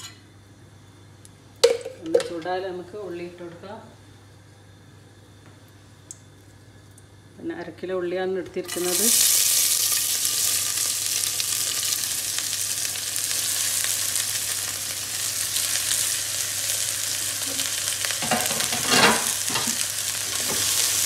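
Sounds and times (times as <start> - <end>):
onions sizzling in oil: 8.7 - 21.0.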